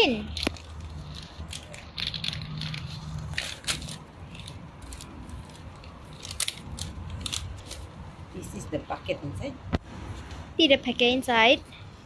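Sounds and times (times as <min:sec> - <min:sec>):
paper packet crackling: 0:00.0 - 0:08.0.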